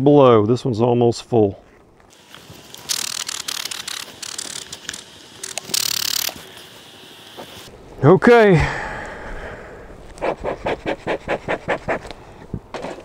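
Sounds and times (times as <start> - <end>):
loud rasp: 10.2 - 12.1.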